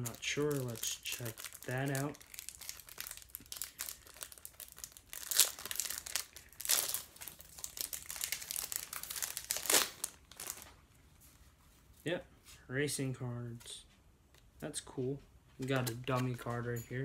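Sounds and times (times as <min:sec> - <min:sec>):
wrapper crinkling: 0:00.0 - 0:10.8.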